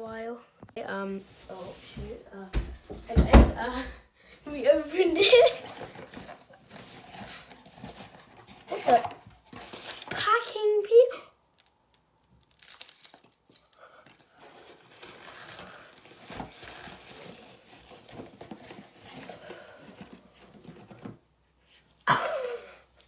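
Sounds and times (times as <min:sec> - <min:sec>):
packing peanuts rustling: 0:05.5 - 0:10.5, 0:11.6 - 0:20.3.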